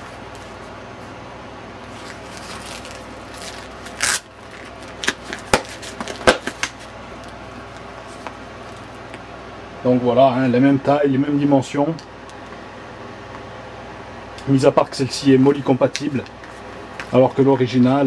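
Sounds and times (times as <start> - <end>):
steady low hum: 0.0 - 18.0
plastic scraping in fabric pouch: 1.9 - 6.2.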